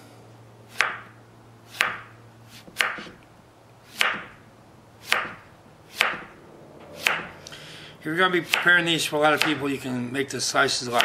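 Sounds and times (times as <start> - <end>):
knife chopping on wooden board: 0.7 - 3.2, 3.9 - 4.4, 5.0 - 6.3, 8.5 - 8.7, 9.4 - 9.6.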